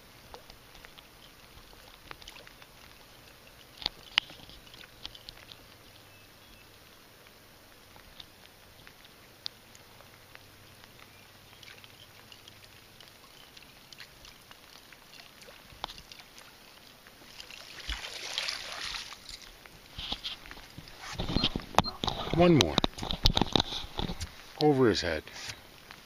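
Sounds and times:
lure splashing across water: 0.3s - 6.1s, 11.5s - 24.7s
small ticks: 0.3s - 18.0s
loud splash: 17.3s - 19.4s.

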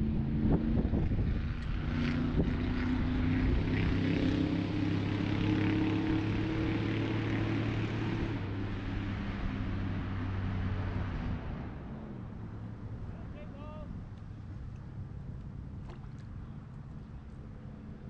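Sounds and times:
low motor drone: 0.0s - 18.0s
water splashing: 15.6s - 16.6s.

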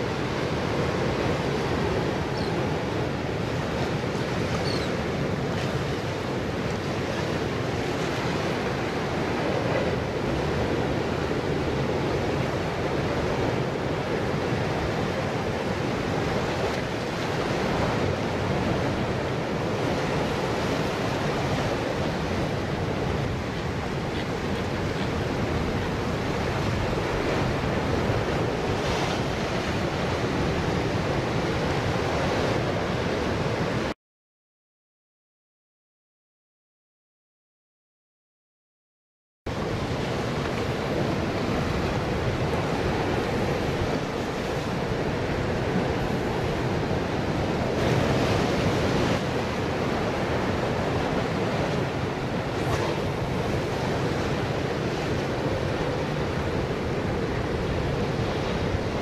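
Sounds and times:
surf breaking over rocks: 39.5s - 59.0s.

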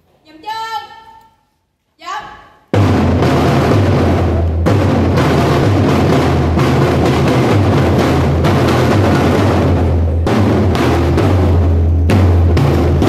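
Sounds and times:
snare drums drumming: 2.7s - 13.0s.

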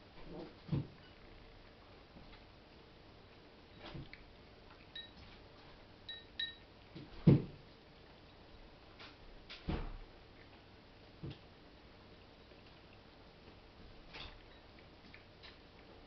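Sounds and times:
cat chewing: 12.0s - 13.4s.

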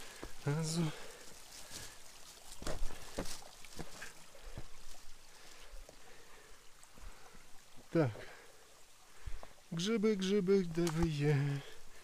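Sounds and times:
footsteps on loose stones: 0.0s - 5.1s
faint trickle of water: 0.0s - 12.0s.

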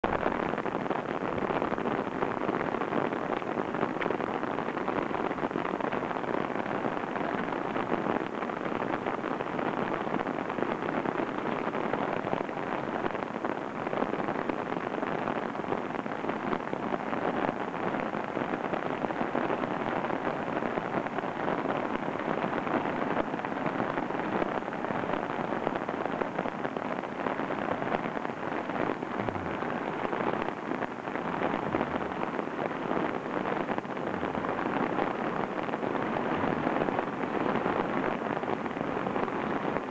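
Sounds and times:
floodwater rushing over gravel: 26.3s - 39.9s.

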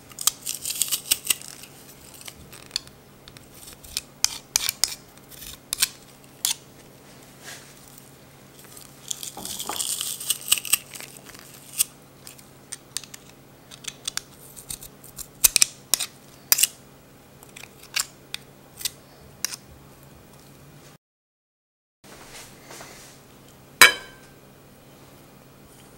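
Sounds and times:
garlic press crushing garlic: 0.1s - 6.6s.

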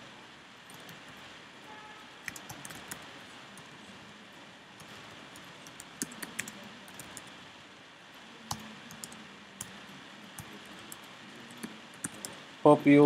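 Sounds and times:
computer keyboard typing: 0.7s - 1.2s, 2.2s - 3.8s, 4.8s - 7.3s, 8.4s - 12.4s.

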